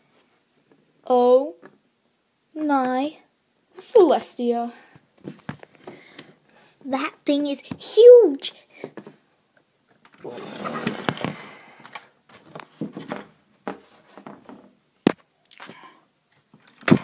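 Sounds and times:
child growling voice: 10.2s - 10.8s.

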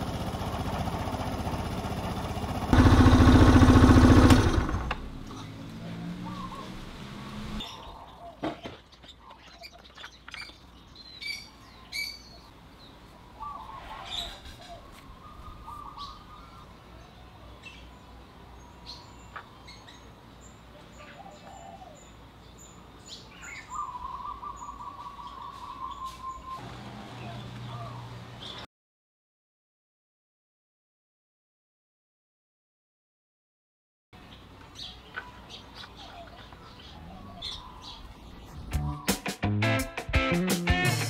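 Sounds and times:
small birds chirping: 5.3s - 28.7s, 34.2s - 39.3s
bird trill: 7.6s - 12.5s, 23.1s - 26.6s, 34.8s - 39.2s.

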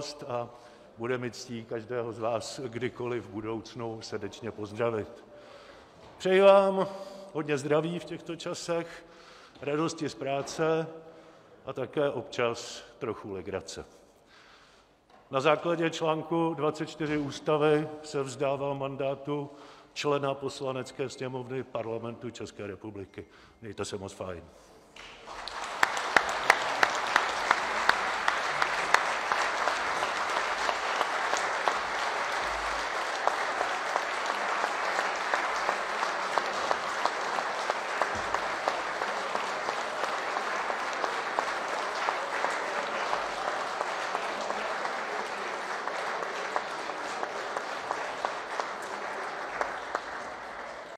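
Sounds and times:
crowd applauding: 0.0s - 0.2s, 25.0s - 50.9s.

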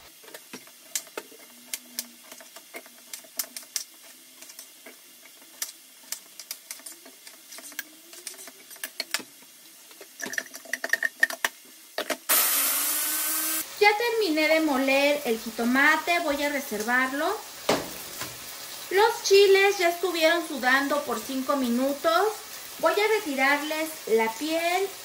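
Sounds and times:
blender whirring: 12.3s - 14.2s.

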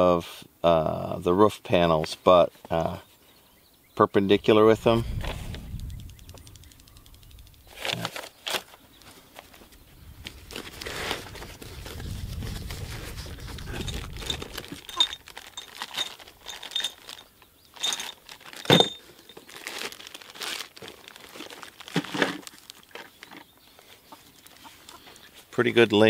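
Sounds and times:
low rumble: 4.4s - 7.8s, 11.6s - 14.9s
sharp clicks: 5.4s - 8.2s
plastic bags crinkling: 10.3s - 23.3s.

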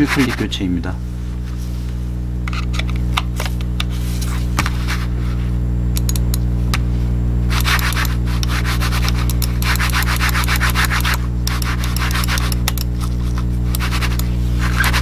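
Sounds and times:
mouse scraping on cloth pad: 0.0s - 0.5s, 7.5s - 15.0s
steady low hum: 0.0s - 15.0s.

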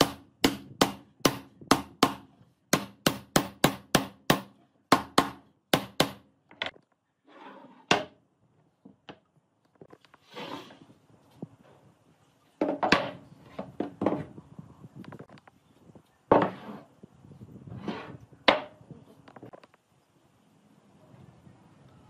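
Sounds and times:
wood sliding and scraping: 6.6s - 8.2s, 9.8s - 11.8s, 16.3s - 17.0s, 17.7s - 19.7s.

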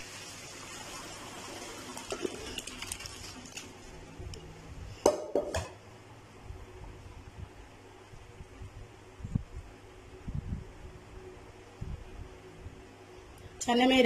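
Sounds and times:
water splashing into colander: 0.0s - 3.9s.

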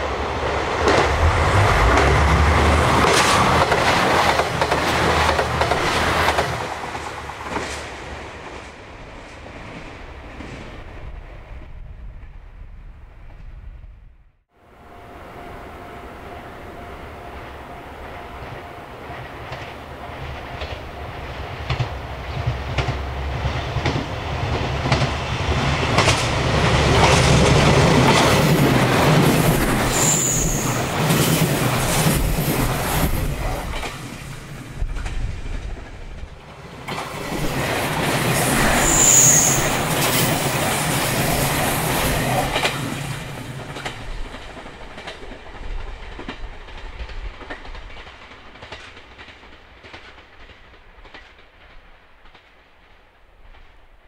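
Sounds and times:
diesel train engines: 0.0s - 10.4s, 14.6s - 53.7s
high wheel squeal: 29.9s - 30.9s, 38.5s - 40.3s.

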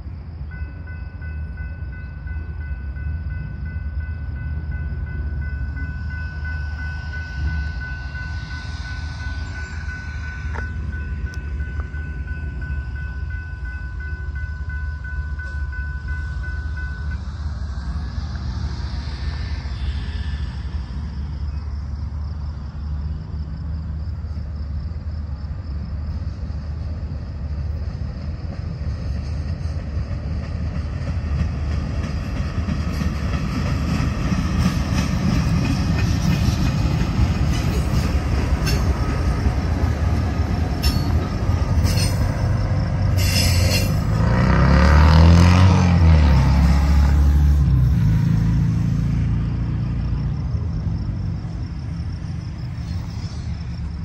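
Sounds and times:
train engine and wheels rumbling: 0.0s - 54.0s
steady high tone: 0.4s - 22.0s.

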